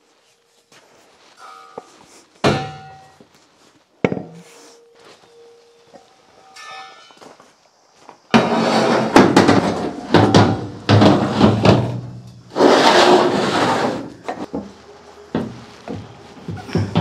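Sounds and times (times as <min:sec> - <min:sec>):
gas cylinders knocking and scraping: 0:01.4 - 0:03.3, 0:04.0 - 0:04.5, 0:08.3 - 0:17.0.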